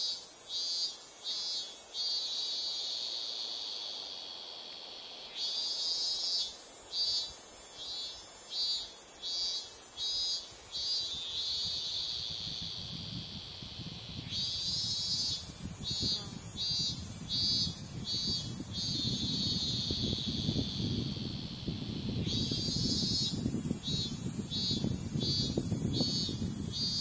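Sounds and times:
insects shrilling: 0:05.3 - 0:27.0.

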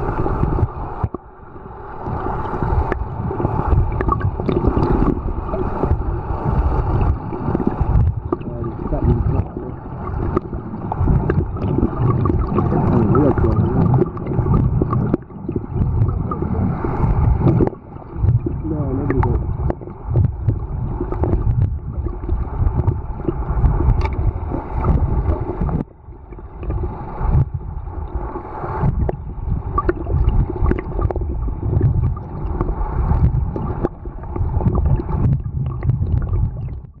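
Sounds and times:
underwater churning rumble: 0:00.0 - 0:37.0.

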